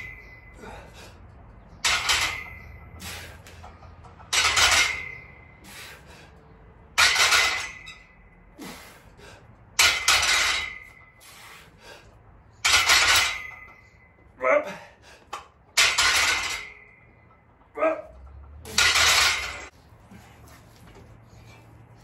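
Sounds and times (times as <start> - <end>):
barbell clanking with ringing tail: 1.7 - 5.6, 6.9 - 8.3, 9.8 - 11.2, 12.6 - 14.2, 18.4 - 19.7.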